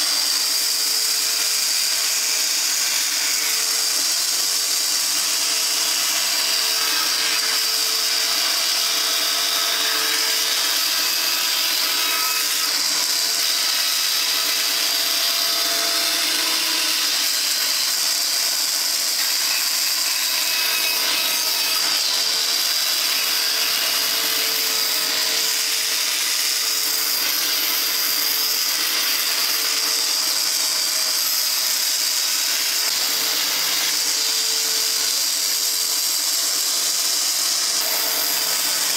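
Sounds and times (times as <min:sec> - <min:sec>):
band saw cutting wood: 0:00.0 - 0:38.9.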